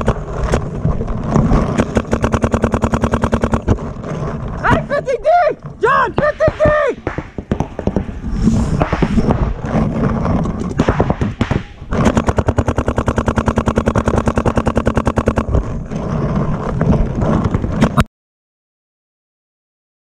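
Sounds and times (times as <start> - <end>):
paintball marker firing: 0.0 - 0.7, 1.6 - 3.8, 6.2 - 9.7, 10.5 - 15.6.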